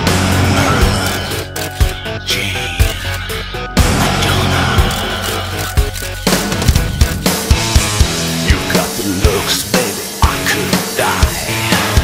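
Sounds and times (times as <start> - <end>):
instrumental rock music: 0.0 - 12.0
bass drum beat: 6.2 - 12.0.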